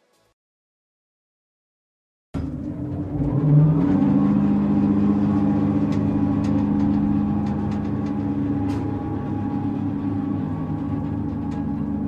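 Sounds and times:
music with long low notes: 2.4s - 12.0s.

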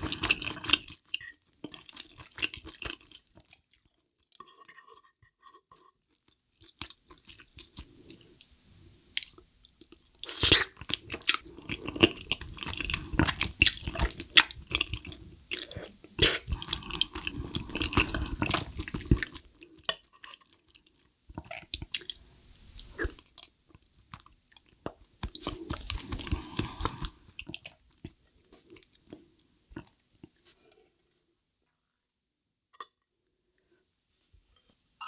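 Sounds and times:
wet chewing and mouth sounds: 0.0s - 4.4s, 6.1s - 30.4s.

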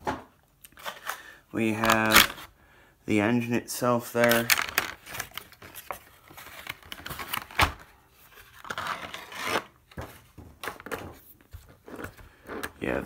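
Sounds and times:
plastic packaging crinkling: 0.7s - 2.5s, 4.1s - 9.8s.

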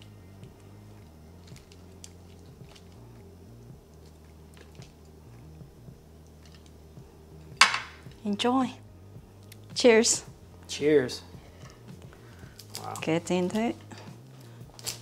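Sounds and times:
faint background music: 0.0s - 15.0s
wet squishes of noodles: 0.4s - 5.2s
tongs clicking: 6.2s - 6.8s.

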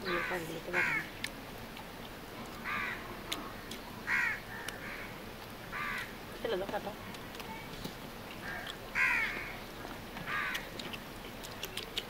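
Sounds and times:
crow cawing: 0.0s - 1.1s, 2.6s - 3.1s, 4.0s - 6.2s, 8.4s - 9.6s, 10.2s - 10.7s.

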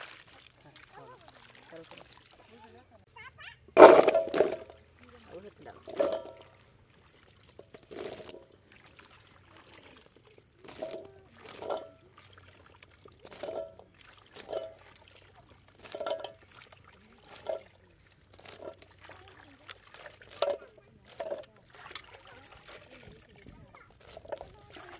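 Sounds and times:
spatula stirring wet food in pot: 5.7s - 24.9s.

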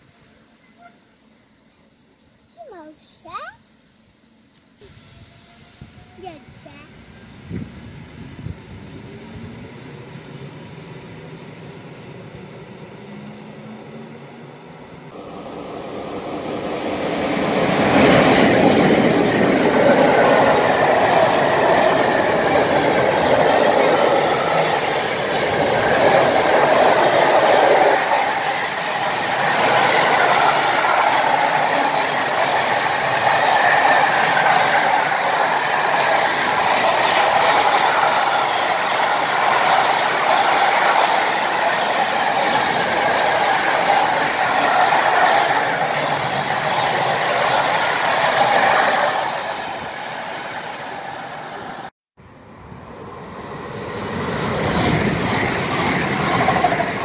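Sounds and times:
train approaching: 0.0s - 57.0s
train wheels rumbling on rail: 4.8s - 51.9s, 52.6s - 57.0s.

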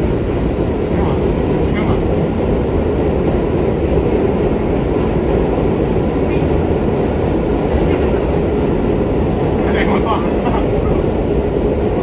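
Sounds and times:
subway wheels rumbling on rail: 0.0s - 12.0s.

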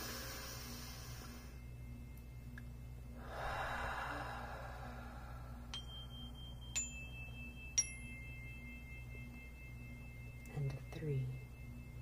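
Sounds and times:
long breath out: 3.2s - 5.7s
metal chimes ringing: 5.4s - 12.0s.

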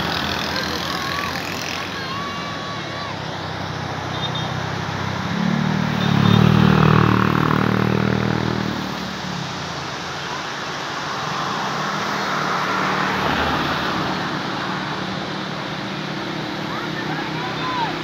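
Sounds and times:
vehicle engine passing by: 0.0s - 9.5s.

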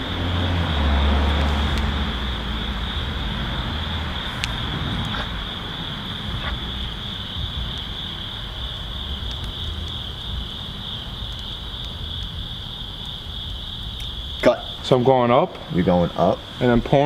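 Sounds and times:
low rumble: 0.0s - 10.4s
crickets trilling: 0.0s - 17.0s.

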